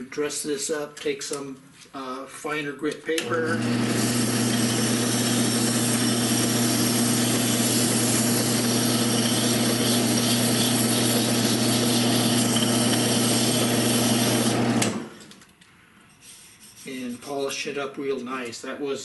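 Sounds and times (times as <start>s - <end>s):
drill press motor hum: 3.2s - 15.4s
sandpaper sanding hiss: 16.2s - 17.4s.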